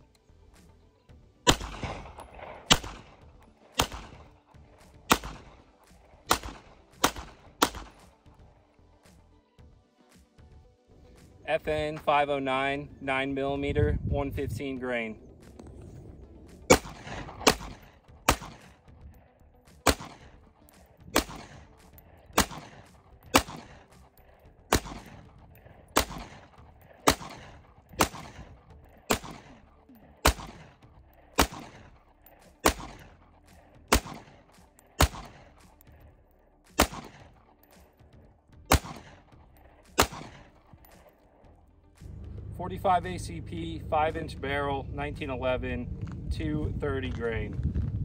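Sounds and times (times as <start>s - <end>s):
pistol shots with echo: 1.4s - 4.4s, 5.0s - 8.2s, 16.6s - 35.9s, 36.7s - 37.6s, 38.7s - 41.1s.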